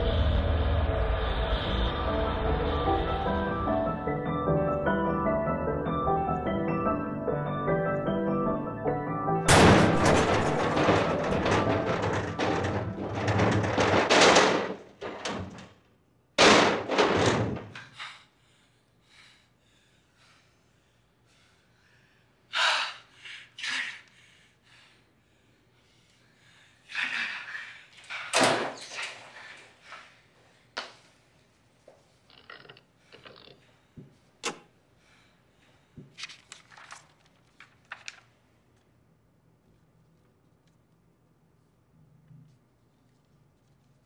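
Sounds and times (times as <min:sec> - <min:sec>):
door knocks and thuds: 0:09.5 - 0:15.7, 0:16.4 - 0:17.8.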